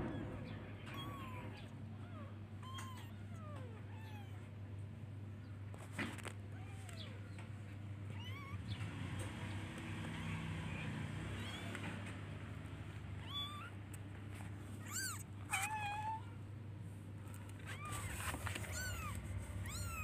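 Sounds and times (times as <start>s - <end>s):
kittens meowing: 0.0s - 4.6s, 6.5s - 7.4s, 8.0s - 8.9s, 9.8s - 12.2s, 12.9s - 14.0s, 14.6s - 16.5s, 17.4s - 20.0s.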